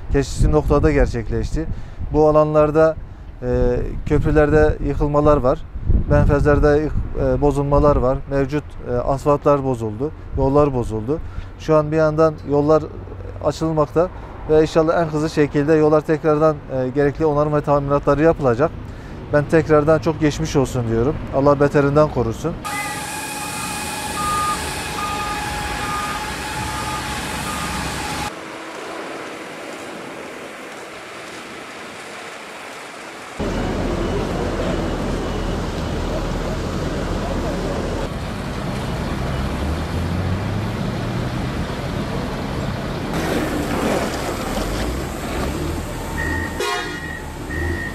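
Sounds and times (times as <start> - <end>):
steady tone: 22.6 - 30.3
heavy diesel machinery droning: 22.6 - 47.9
short beeps: 22.7 - 28.3, 46.1 - 47.9
tyres hissing on wet road: 22.7 - 47.9.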